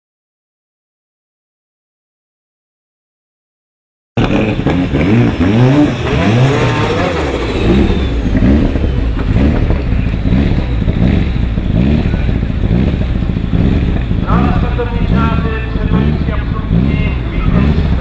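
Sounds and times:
race car engine revving: 4.2 - 18.0.

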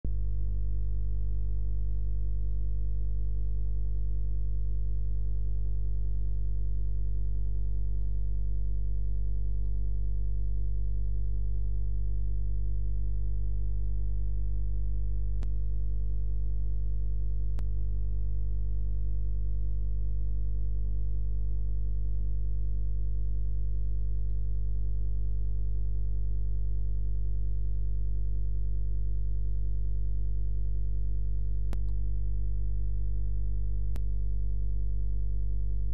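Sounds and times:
electrical mains hum: 0.1 - 35.9
faint clicks: 31.7 - 32.0.

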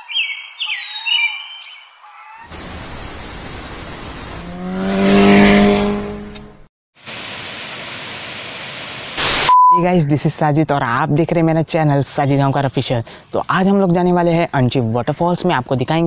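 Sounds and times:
bird chirps: 0.0 - 2.0
tv static hiss: 2.5 - 4.4, 8.2 - 9.5
motorcycle passing by: 2.5 - 6.7.

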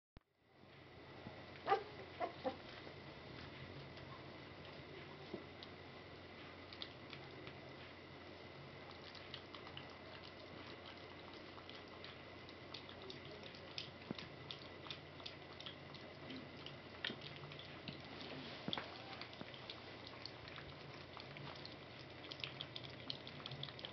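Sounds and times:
steady low hum: 0.4 - 23.9
puppy lapping from a bowl: 6.4 - 7.6, 8.8 - 23.9.

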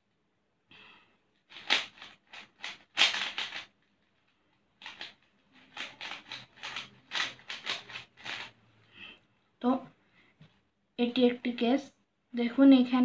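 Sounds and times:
puzzle cube clacking and scraping: 1.4 - 8.6.

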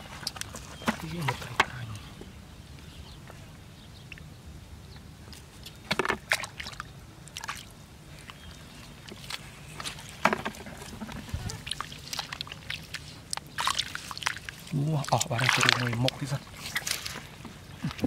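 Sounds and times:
hands sloshing through muddy water: 5.3 - 18.0
sharp water splashes: 5.7 - 18.0.

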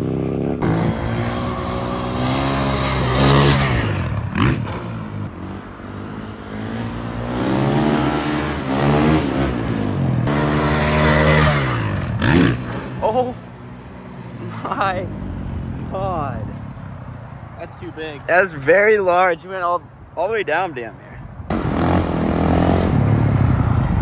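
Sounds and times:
dirt bike engine revving: 0.0 - 13.3, 21.5 - 23.2.

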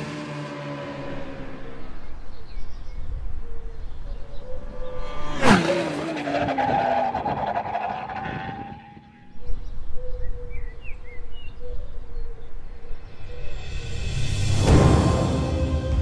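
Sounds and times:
racing motorcycle passing: 0.0 - 9.8.

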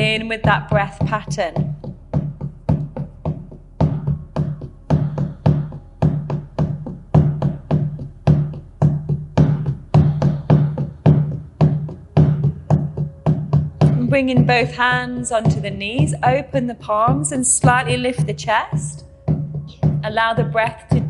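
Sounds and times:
frame drum beaten with padded beater: 0.0 - 21.0.

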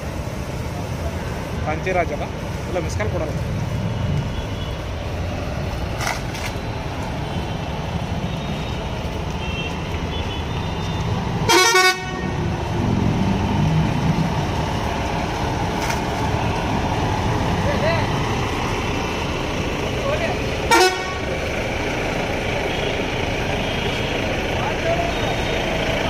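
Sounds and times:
diesel bus engine rumbling: 0.0 - 26.0
bus horn blast: 11.4 - 12.4, 20.7 - 21.3.

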